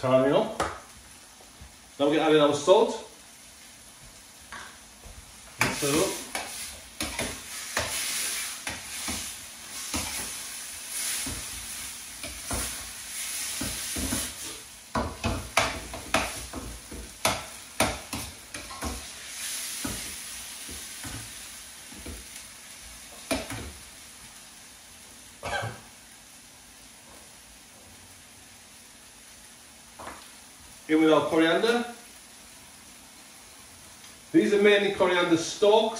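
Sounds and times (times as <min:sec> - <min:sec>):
chicken sizzling in curry sauce: 0:00.0 - 0:35.9
utensil stirring and scraping pan: 0:05.5 - 0:22.2.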